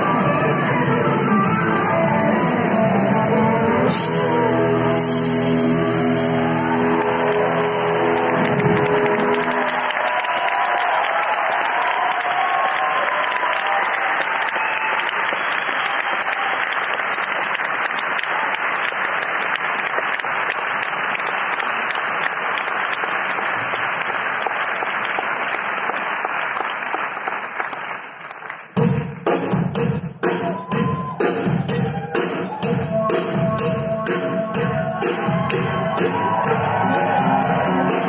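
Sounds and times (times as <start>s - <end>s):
band playing with drum hits: 0.0s - 9.8s, 28.8s - 38.0s
audience applauding: 4.3s - 28.8s, 34.9s - 38.0s.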